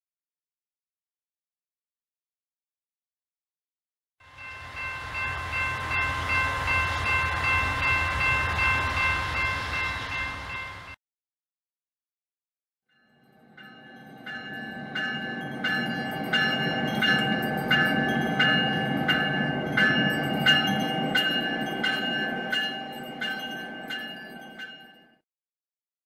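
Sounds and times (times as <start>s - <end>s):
railroad bell ringing: 4.2s - 11.0s, 12.9s - 25.2s
train rumble: 4.2s - 11.0s, 14.1s - 24.5s.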